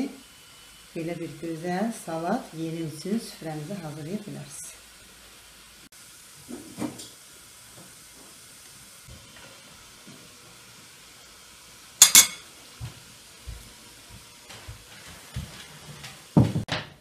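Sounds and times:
room hiss: 0.0 - 17.0
metal spoon clinking on dish: 12.0 - 12.4
tableware knocking on table: 12.0 - 12.4.

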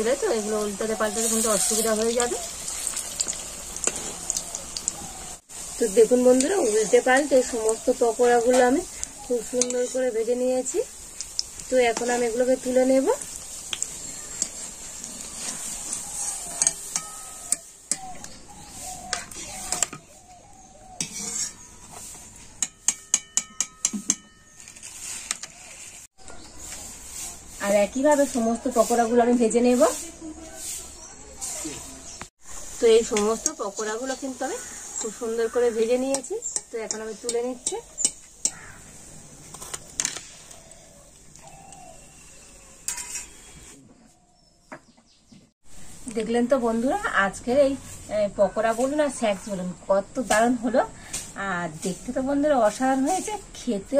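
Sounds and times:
oil sizzling in a wok: 0.0 - 23.7, 26.0 - 43.8, 45.6 - 53.9
skimmer clinking against metal: 16.5 - 18.1, 22.6 - 24.9
ringing metallic taps: 22.6 - 24.8
faint bird calls: 37.6 - 39.0.

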